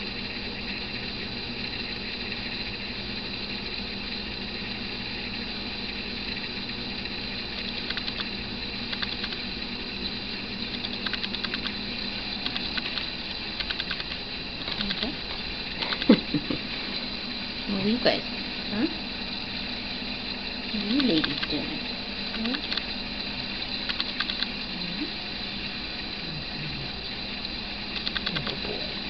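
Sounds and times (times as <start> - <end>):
steady tonal hum: 0.0 - 29.0
rapid light clicking: 7.4 - 9.6, 10.5 - 16.4, 20.8 - 21.6, 22.2 - 24.6, 27.4 - 28.8.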